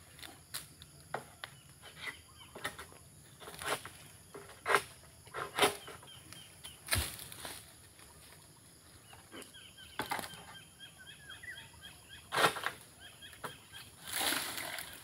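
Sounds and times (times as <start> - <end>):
small birds chirping: 0.9 - 15.0
blade rasping on palm fronds: 14.0 - 15.0.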